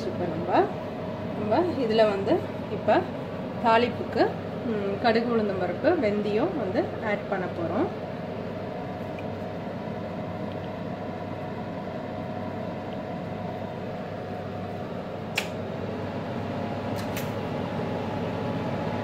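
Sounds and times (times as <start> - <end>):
steady mechanical hum: 0.0 - 19.0
sharp click: 15.3 - 15.6, 17.0 - 17.3.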